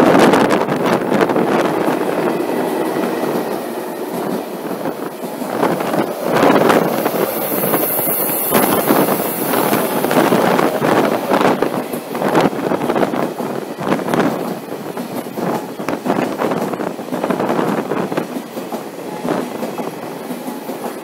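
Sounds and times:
trains rushing past: 0:00.0 - 0:21.0
wind buffeting microphone: 0:00.0 - 0:21.0.

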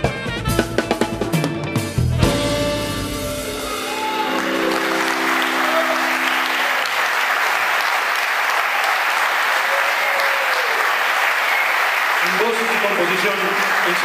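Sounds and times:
band held chord: 0:02.2 - 0:08.0
audience applauding and cheering: 0:03.1 - 0:14.0.

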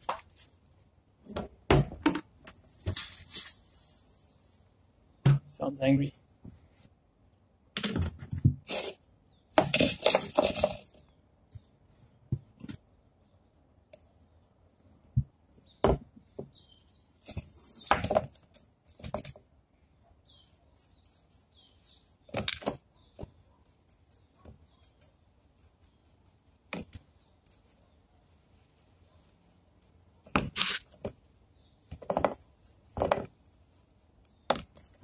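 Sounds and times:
paintbrush dabbing: 0:20.2 - 0:22.3, 0:23.0 - 0:30.3.

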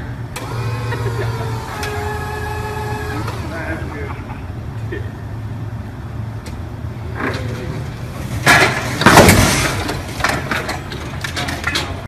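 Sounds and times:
forklift engine running: 0:00.0 - 0:12.0
truck dropping with bang and clatter: 0:07.1 - 0:12.0
loud crash: 0:08.4 - 0:10.8.

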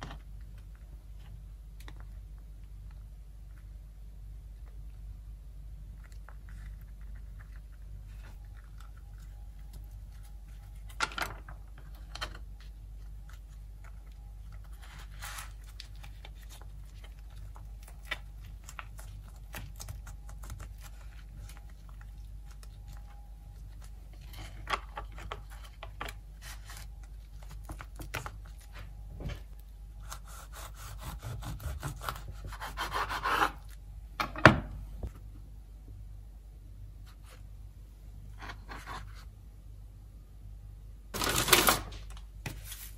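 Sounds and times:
tortilla wrap handled and rolled: 0:06.2 - 0:30.2, 0:41.2 - 0:42.9.

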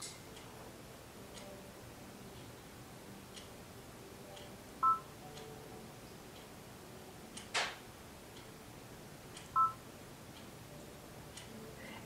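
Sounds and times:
two-tone key beep: 0:04.8 - 0:05.1, 0:09.6 - 0:09.8
faint ticking: 0:08.1 - 0:12.0.

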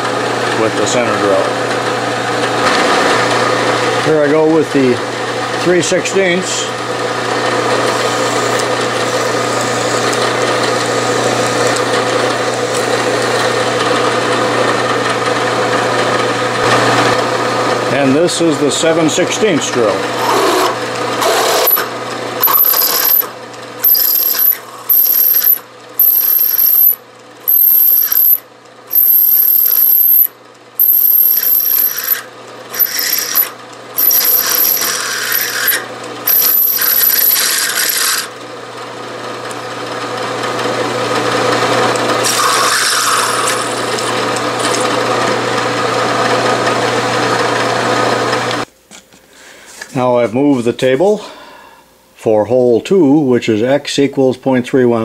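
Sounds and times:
milling machine spindle hum: 0:00.0 - 0:48.7
drill squealing cutting steel: 0:20.2 - 0:38.3, 0:42.2 - 0:43.8.

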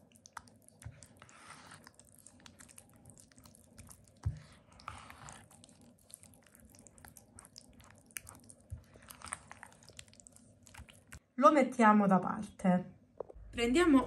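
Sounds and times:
spatula squelching and scraping: 0:00.0 - 0:11.2.

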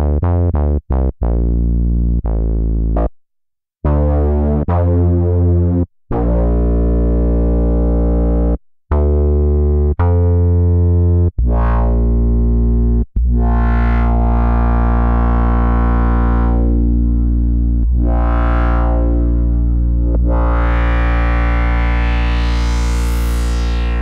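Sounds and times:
synthesizer bass note with filter sweeps: 0:03.9 - 0:24.0.

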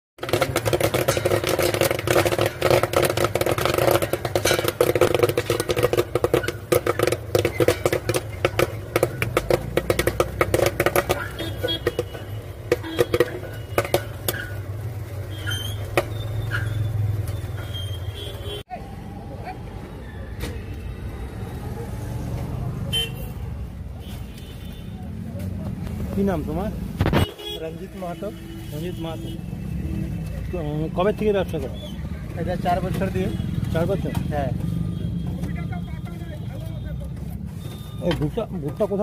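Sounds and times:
popcorn popping: 0:00.2 - 0:16.2.

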